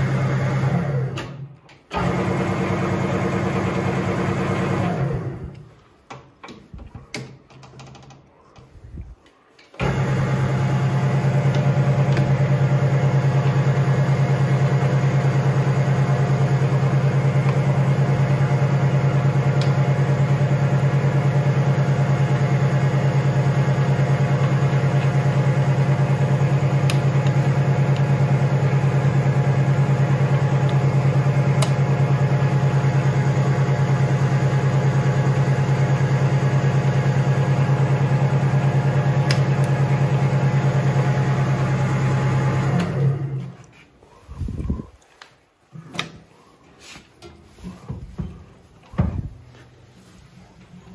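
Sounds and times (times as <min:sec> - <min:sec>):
lathe motor humming: 0:02.0 - 0:05.5, 0:09.8 - 0:43.7.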